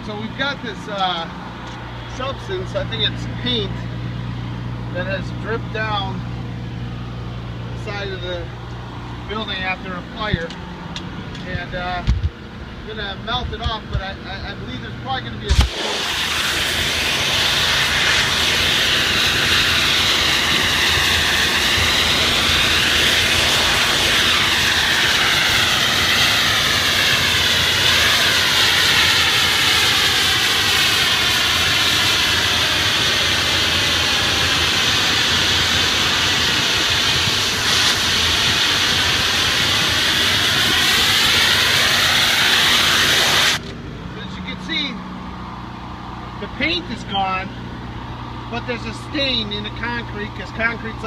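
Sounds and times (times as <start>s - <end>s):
engine and pump humming: 0.0s - 51.0s
pressure washer jet hissing: 15.5s - 43.7s.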